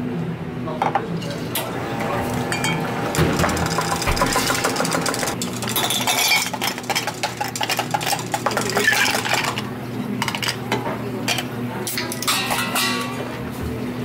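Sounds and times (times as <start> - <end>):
ice cubes clattering into glass: 3.4 - 9.7.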